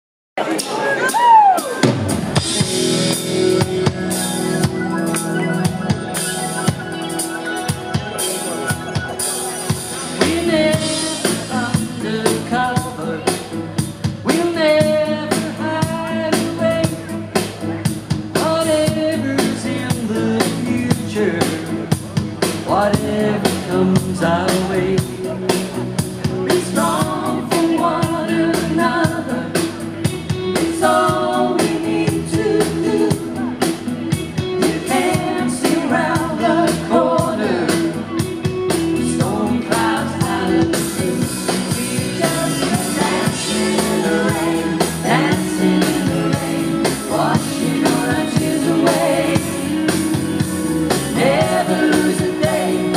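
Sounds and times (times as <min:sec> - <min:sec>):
backing instruments: 0:00.4 - 0:52.9
steady drum beat: 0:00.6 - 0:52.9
people singing: 0:09.9 - 0:13.6, 0:26.4 - 0:29.8, 0:30.6 - 0:33.6, 0:34.6 - 0:38.1, 0:38.9 - 0:52.9.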